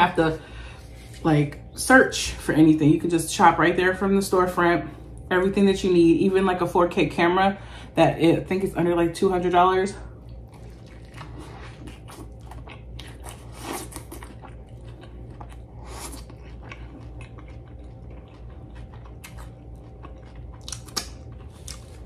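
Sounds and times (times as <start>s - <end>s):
low steady hum: 0.0s - 22.0s
chewing and crunching: 10.0s - 22.0s.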